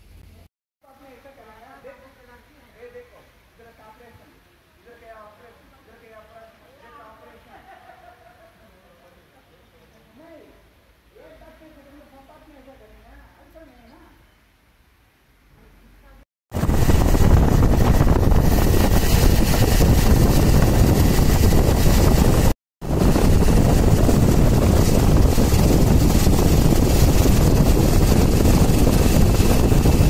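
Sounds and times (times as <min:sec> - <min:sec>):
wind buffeting microphone: 0:16.5 - 0:30.0.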